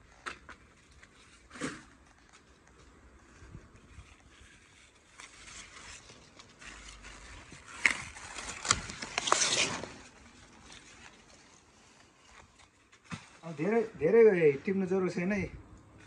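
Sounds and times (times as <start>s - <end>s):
leaves rustling: 0.0s - 16.0s
leaves snapped off stalks: 5.0s - 13.6s.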